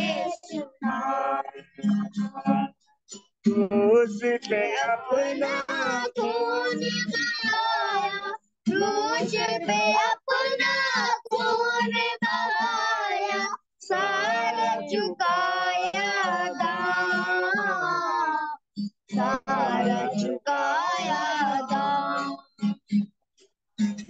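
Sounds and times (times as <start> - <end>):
high voice singing: 0.0 - 2.7, 3.5 - 22.4.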